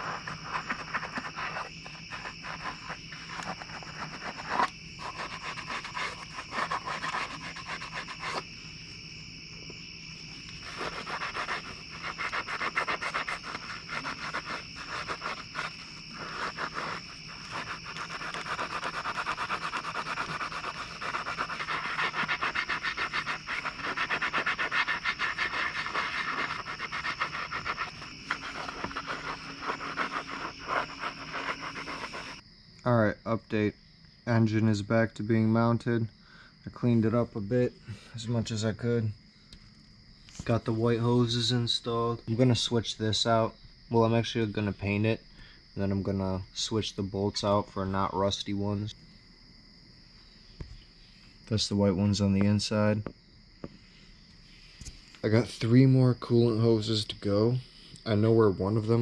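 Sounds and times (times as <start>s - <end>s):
scratchy rhythmic scrubbing: 0.0s - 8.4s, 10.6s - 32.4s
crickets chirring: 0.0s - 59.0s.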